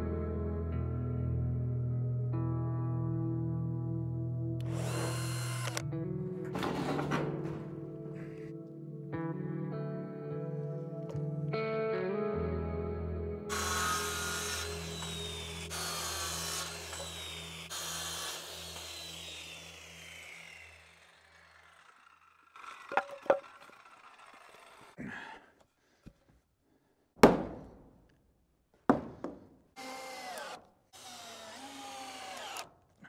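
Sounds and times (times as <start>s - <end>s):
cordless drill running: 4.6s - 5.8s, 13.5s - 25.0s, 29.8s - 32.7s
miter saw whining: 4.6s - 5.8s, 13.5s - 25.0s, 29.8s - 32.7s
boards knocking: 28.9s - 29.5s.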